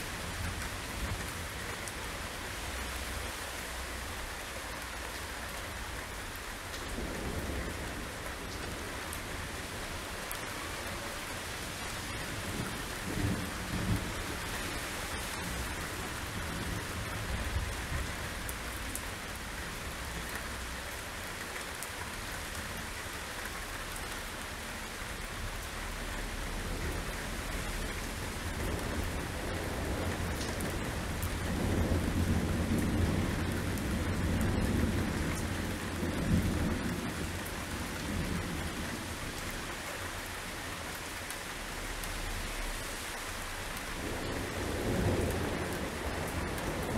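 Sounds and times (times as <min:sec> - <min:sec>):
torrential rain: 0:00.0 - 0:46.9
thunder rumbling: 0:44.0 - 0:46.9.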